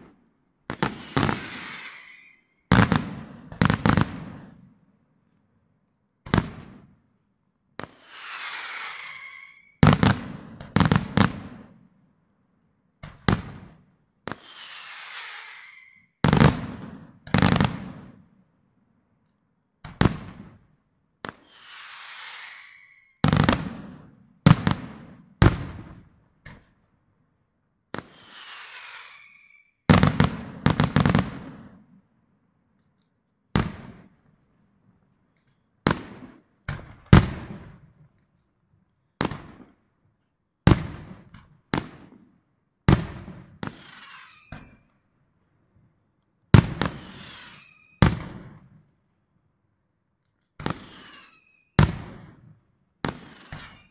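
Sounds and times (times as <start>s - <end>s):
firework shells bursting: 0.7s - 3.0s, 7.8s - 10.1s, 14.3s - 16.1s, 28.0s - 30.3s, 53.1s - 53.9s
firework hiss: 0.8s - 2.6s, 7.9s - 9.8s, 14.3s - 16.1s, 21.4s - 23.2s, 28.0s - 29.7s.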